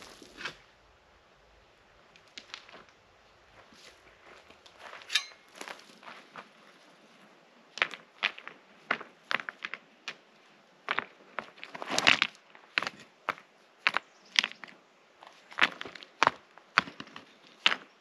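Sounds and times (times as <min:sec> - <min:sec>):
rocks clacking together: 0:02.1 - 0:03.0, 0:15.5 - 0:18.0.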